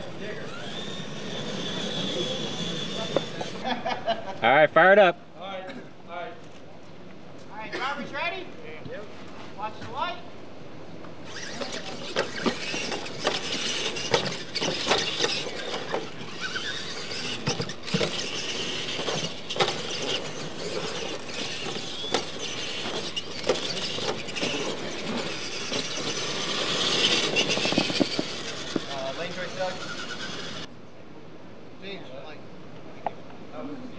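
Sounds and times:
toy truck drivetrains whining: 0:00.0 - 0:03.7, 0:11.2 - 0:30.7
knocks and clatter of wheels: 0:11.3 - 0:30.7.

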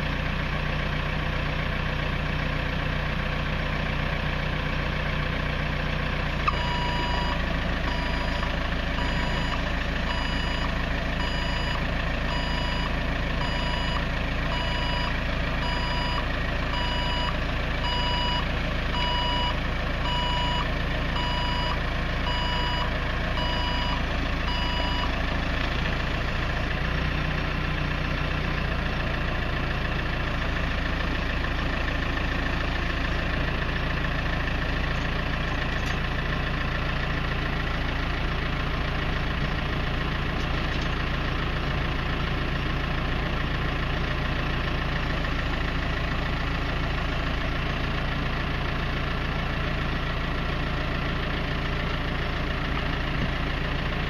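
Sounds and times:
diesel engine running: 0:00.0 - 0:54.0
reversing alarm beeping: 0:06.4 - 0:25.2.

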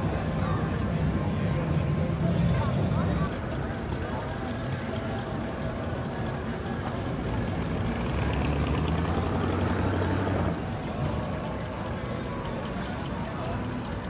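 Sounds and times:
car engine passing slowly: 0:03.3 - 0:14.0.

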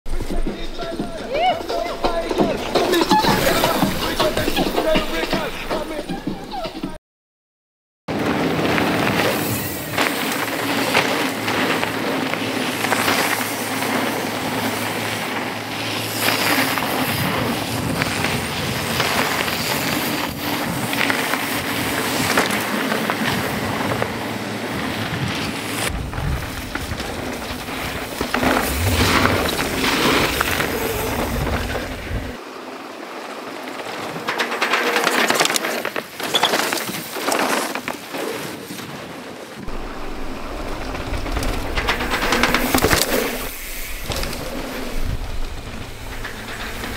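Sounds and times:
bike rattling over bumps: 0:00.1 - 0:06.2, 0:08.1 - 0:46.9
tyre noise rushing: 0:08.2 - 0:32.4, 0:39.6 - 0:46.9
wind on microphone: 0:23.2 - 0:32.4.

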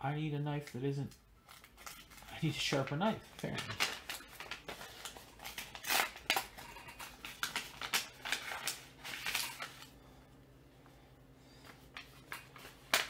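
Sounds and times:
paper envelope being opened: 0:01.5 - 0:10.0.

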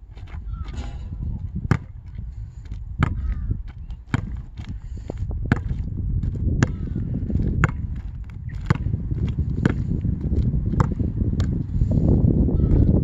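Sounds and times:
basketball bouncing on asphalt: 0:00.0 - 0:13.0
low rumble: 0:00.4 - 0:03.7.

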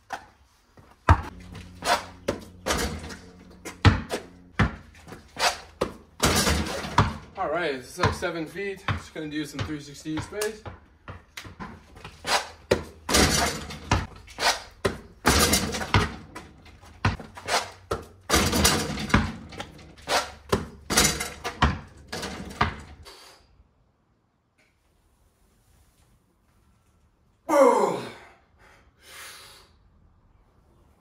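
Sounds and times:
basketball bouncing on concrete: 0:00.8 - 0:07.4, 0:08.0 - 0:23.0
sneaker landings: 0:00.8 - 0:07.4, 0:08.0 - 0:23.0.

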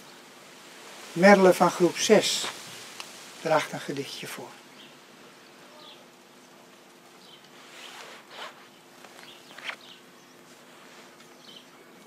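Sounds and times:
faint steady hum: 0:00.0 - 0:12.0
brief rustles: 0:07.4 - 0:11.5.

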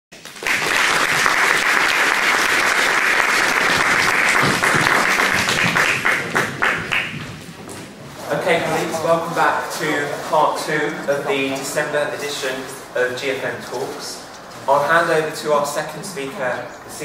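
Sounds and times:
audience applauding: 0:00.1 - 0:12.2.

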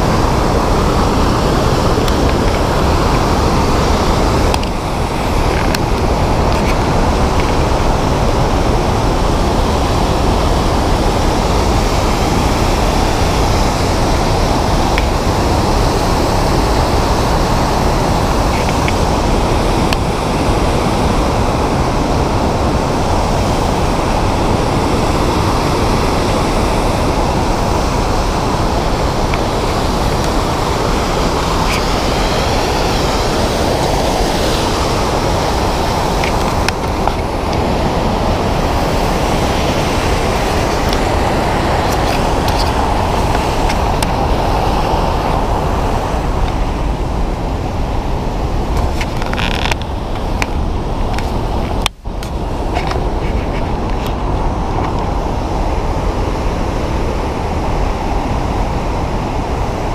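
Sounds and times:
waterfall roar: 0:00.0 - 0:59.9.

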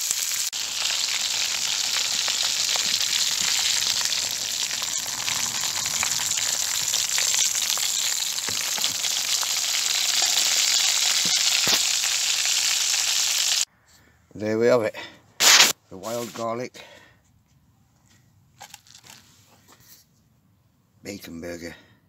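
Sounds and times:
meat sizzling in a pan: 0:00.0 - 0:13.7.

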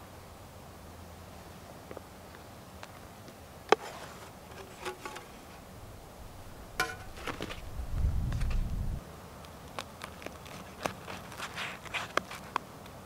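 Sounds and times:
wooden spoon knocking on metal pans: 0:06.8 - 0:07.3.

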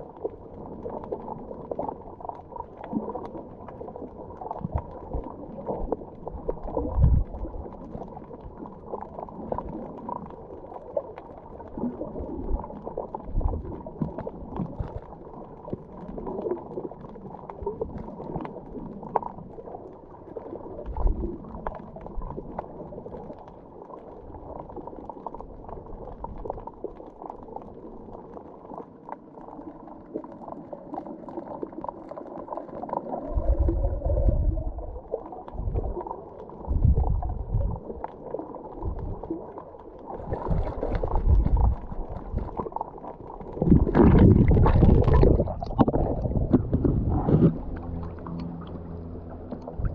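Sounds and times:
underwater churning and gurgling: 0:00.0 - 0:49.9
low underwater thumps: 0:43.6 - 0:49.9.

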